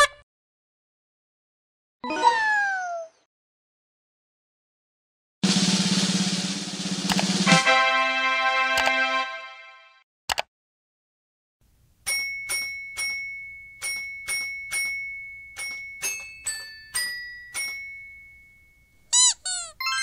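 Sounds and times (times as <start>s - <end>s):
glockenspiel-style chimes: 12.1s - 19.1s.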